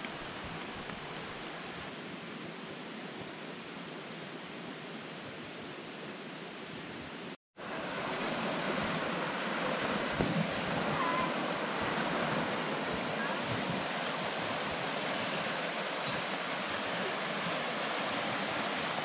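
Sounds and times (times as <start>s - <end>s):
rapids running over rocks: 7.6s - 19.0s
river water rushing: 7.6s - 19.0s.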